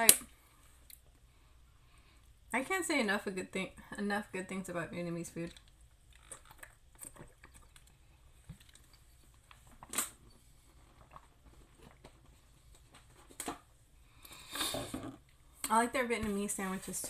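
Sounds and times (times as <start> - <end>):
person drinking and eating: 5.5 - 12.3, 14.0 - 15.4.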